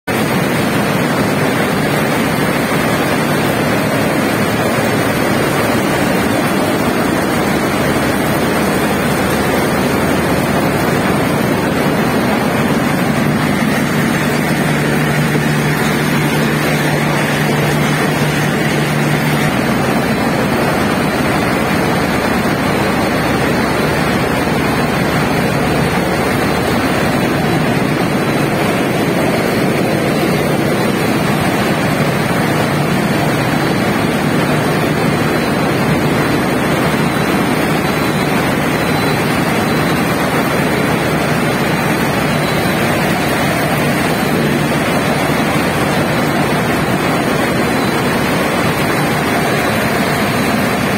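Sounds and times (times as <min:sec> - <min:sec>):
combine harvester running: 0:00.1 - 0:50.9.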